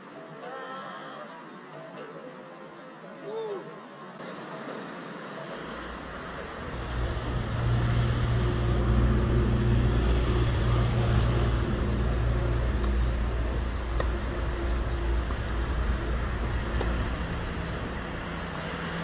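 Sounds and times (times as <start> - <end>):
low engine drone: 4.5 - 19.0.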